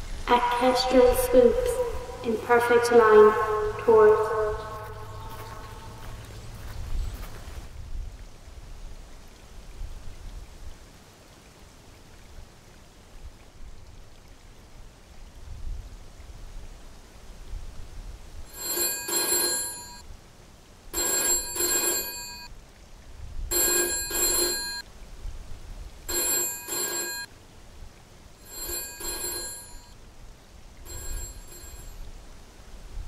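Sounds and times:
telephone bell double ring: 0:18.5 - 0:20.0, 0:21.0 - 0:22.5, 0:23.5 - 0:24.8, 0:26.1 - 0:27.3, 0:28.4 - 0:30.0, 0:30.9 - 0:32.0.

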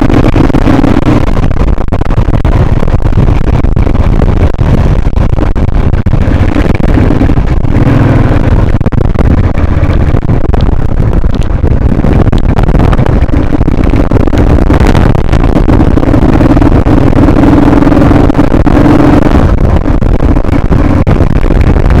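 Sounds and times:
motorcycle engine running: 0:00.0 - 0:22.0
wind buffeting microphone: 0:00.0 - 0:22.0.

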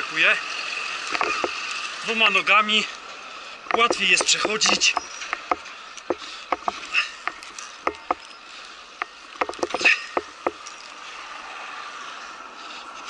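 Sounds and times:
ropes and tyres knocking: 0:01.1 - 0:01.6, 0:03.7 - 0:08.3, 0:09.0 - 0:10.9.

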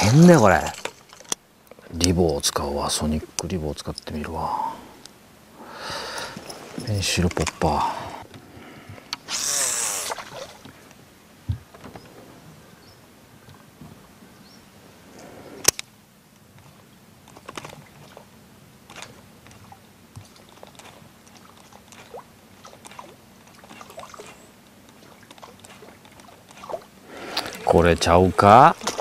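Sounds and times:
small splashes and ticks: 0:00.6 - 0:02.5, 0:16.4 - 0:29.0
fishing reel whirring: 0:09.2 - 0:10.5.

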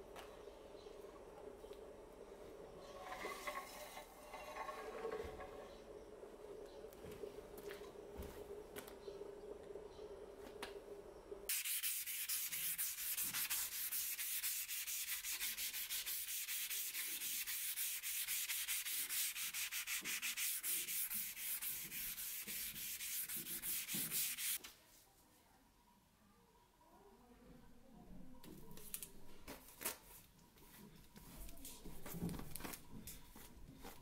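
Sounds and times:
sanding metal blade by hand: 0:11.5 - 0:24.6.

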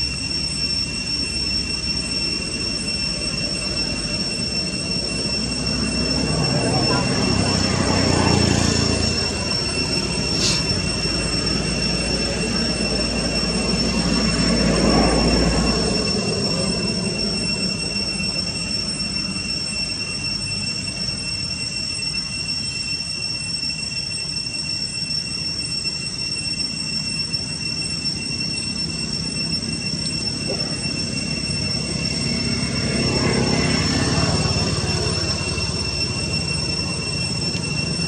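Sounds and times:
cicadas droning: 0:00.0 - 0:38.0
hiss: 0:10.2 - 0:11.2.

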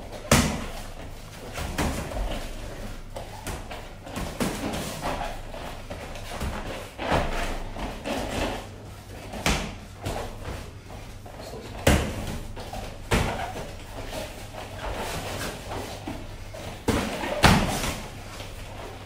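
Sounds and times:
gloved punches and kicks landing: 0:00.2 - 0:00.7.

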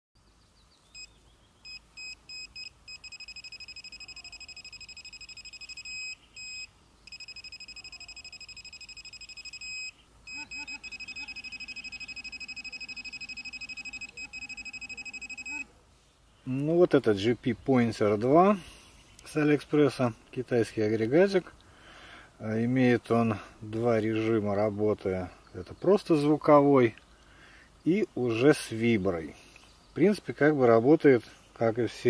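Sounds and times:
pinpointer beeping: 0:01.0 - 0:15.7
low buzz: 0:01.7 - 0:15.7.

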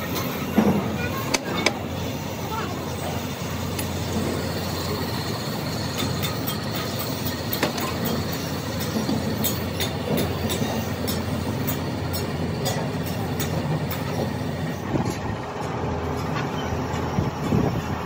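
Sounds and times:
water pump clattering: 0:03.6 - 0:14.6.

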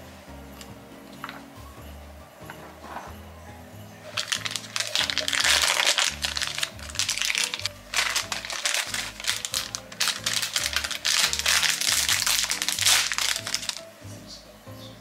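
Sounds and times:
background music: 0:00.0 - 0:15.0
plastic packaging crinkling: 0:04.1 - 0:13.9.

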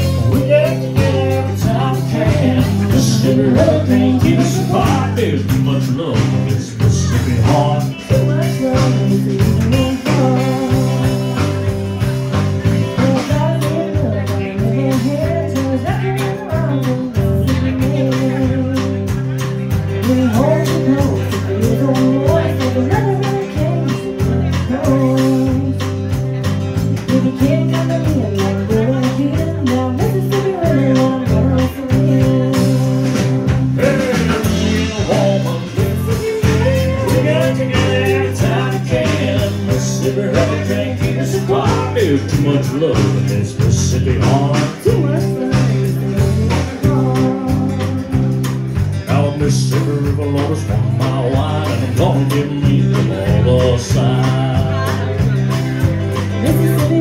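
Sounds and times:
woman singing: 0:00.0 - 0:05.3, 0:06.8 - 0:11.4, 0:13.0 - 0:19.2, 0:20.0 - 0:25.9, 0:27.0 - 0:42.8, 0:44.0 - 0:55.4, 0:56.3 - 0:57.0
low bass pattern: 0:00.0 - 0:57.0
strummed acoustic guitar: 0:00.0 - 0:57.0.

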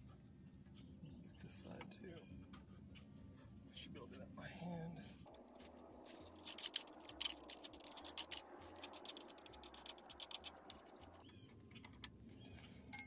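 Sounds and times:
metallic ticking of spinning nut: 0:06.3 - 0:11.2.

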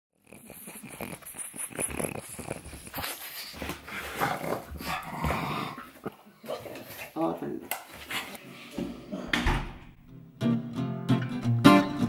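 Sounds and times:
pug vocalising: 0:00.2 - 0:06.2.

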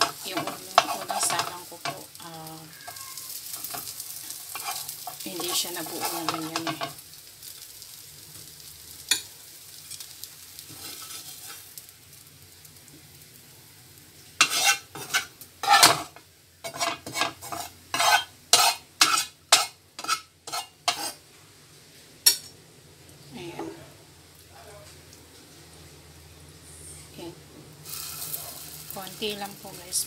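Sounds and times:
spatula scraping pan: 0:00.0 - 0:02.1, 0:02.7 - 0:07.0, 0:10.7 - 0:11.8, 0:14.4 - 0:21.2
oil sizzling in frying pan: 0:00.0 - 0:26.6, 0:27.7 - 0:30.0.

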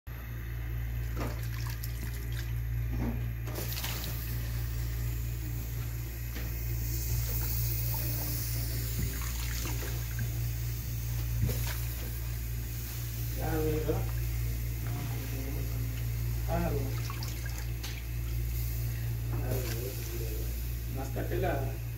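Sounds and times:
steady low hum: 0:00.1 - 0:21.9
water bubbling in a pot: 0:00.9 - 0:02.9, 0:09.0 - 0:13.2, 0:16.0 - 0:18.5.

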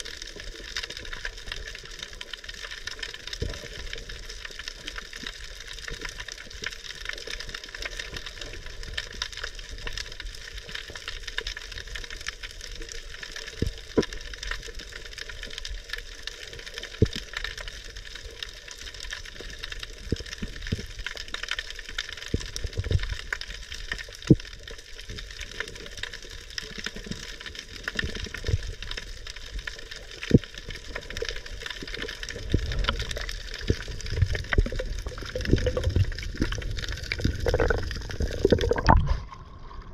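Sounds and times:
underwater crackling hiss: 0:13.0 - 0:39.4
low rushing of water: 0:30.1 - 0:39.9.

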